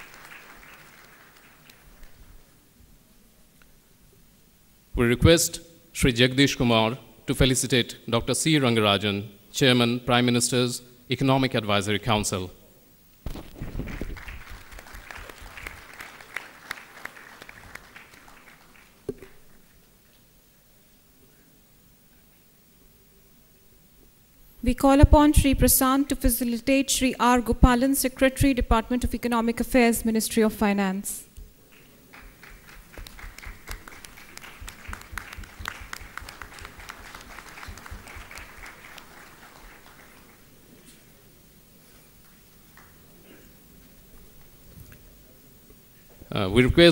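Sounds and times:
audience applause: 0.0 - 2.2, 13.6 - 19.1, 31.7 - 40.6.

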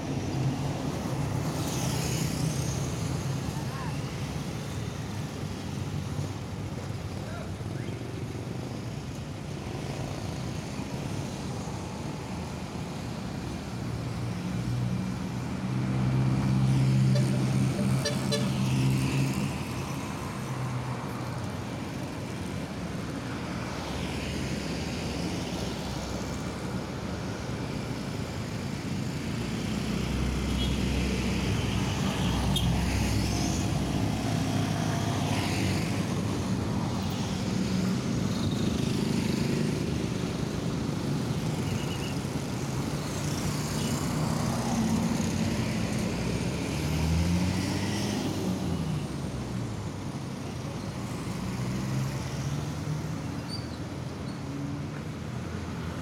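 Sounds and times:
cars passing: 9.4 - 53.2
trucks passing: 13.2 - 53.2
motorbikes passing: 28.9 - 49.6.

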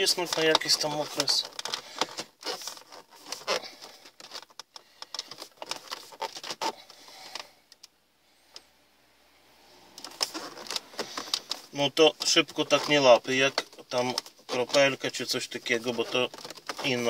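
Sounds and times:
plastic trim clicking and creaking: 0.0 - 8.6, 10.0 - 17.0.

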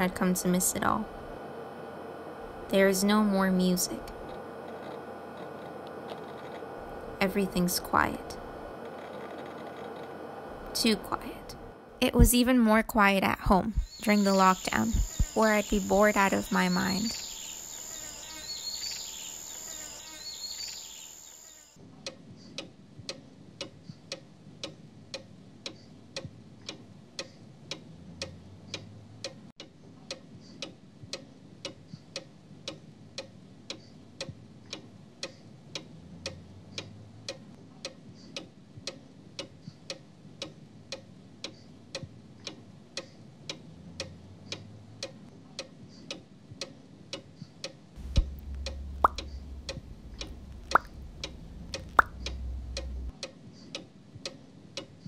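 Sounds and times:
crickets chirping: 0.2 - 12.0, 13.7 - 21.7, 48.0 - 53.1
clock ticking: 22.6 - 53.3.

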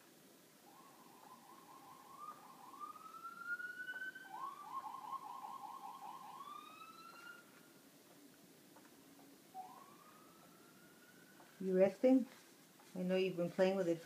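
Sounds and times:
faint emergency siren: 0.6 - 7.8, 9.5 - 12.0.

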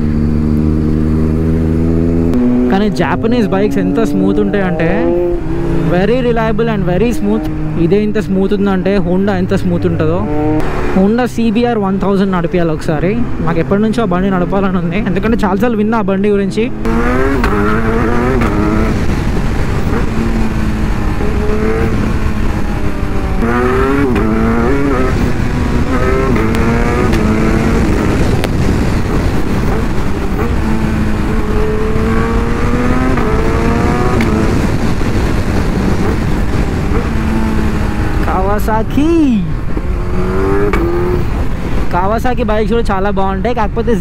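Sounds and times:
motorcycle engine revving: 0.0 - 41.9
wind noise on microphone: 16.7 - 44.0.

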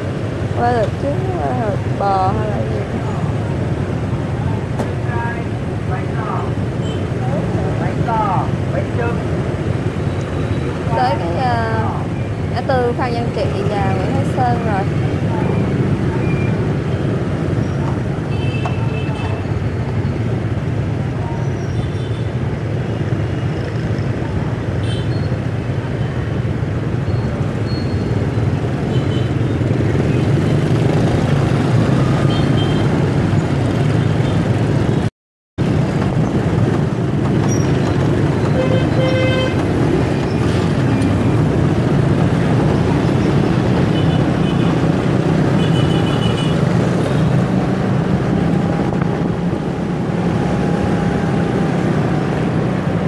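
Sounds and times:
street traffic noise: 0.0 - 53.0
vehicle horn toots: 38.5 - 39.6.

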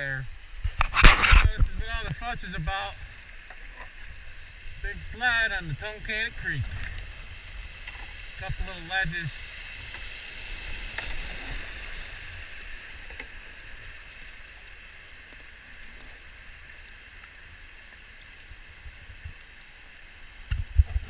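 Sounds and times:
low rumble on microphone: 0.0 - 9.9
whitewater rushing: 3.9 - 16.8.

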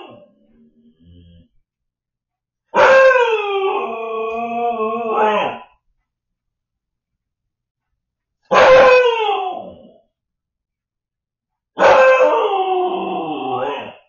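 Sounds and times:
puppy howling: 2.7 - 5.8, 8.5 - 10.0, 11.8 - 14.0.

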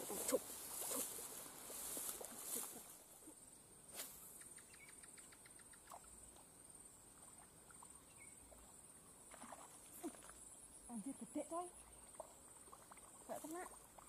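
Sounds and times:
faint chirps: 2.5 - 6.3.

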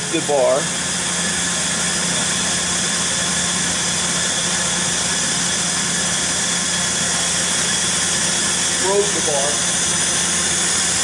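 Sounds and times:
grinder machine hum and hiss: 0.0 - 11.0.

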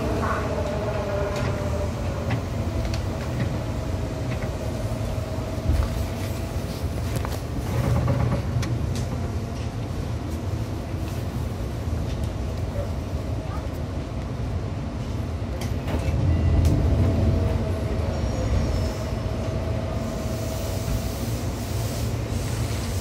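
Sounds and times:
electric train whine: 0.0 - 9.9, 14.8 - 23.0
train wheels rumbling on track: 0.0 - 23.0.

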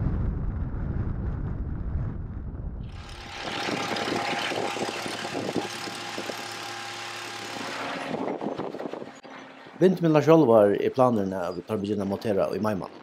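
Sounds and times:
drill rig engine drone: 2.8 - 10.1.

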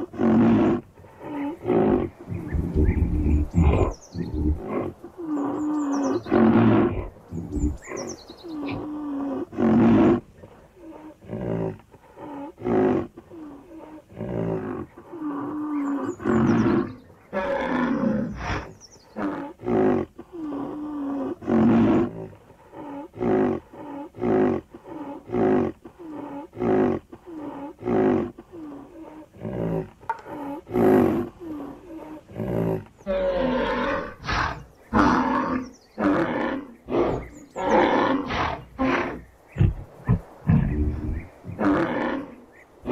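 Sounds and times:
rhinoceros deep calls: 0.0 - 42.9.

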